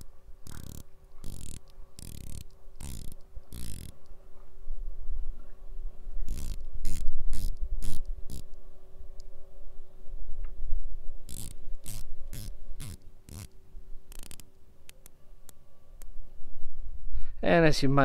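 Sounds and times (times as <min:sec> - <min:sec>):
watch bezel ratcheting clicks: 0:00.0 - 0:04.0, 0:06.3 - 0:08.5, 0:11.3 - 0:13.5, 0:14.1 - 0:14.5
scratchy handling noises: 0:00.0 - 0:04.5, 0:06.2 - 0:08.6, 0:11.3 - 0:15.6.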